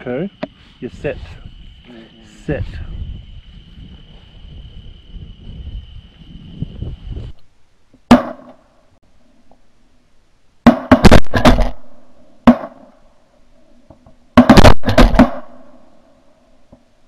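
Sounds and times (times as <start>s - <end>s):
shotgun shots: 10.7s - 12.9s, 14.4s - 15.7s.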